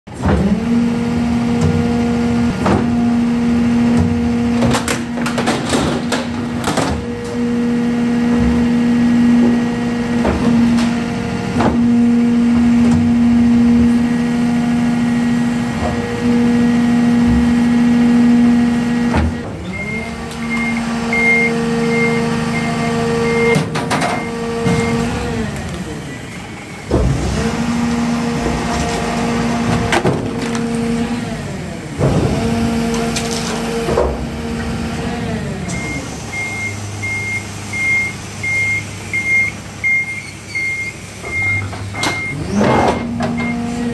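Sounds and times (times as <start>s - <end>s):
hydraulic compactor humming: 0.1s - 43.9s
high beeps: 19.7s - 23.6s.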